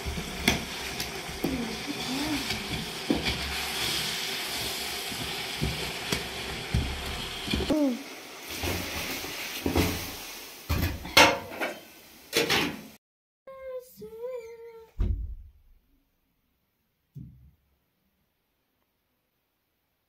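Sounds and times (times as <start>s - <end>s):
metal utensil stirring: 0.0s - 7.7s
food sizzling in a pan: 0.0s - 13.0s.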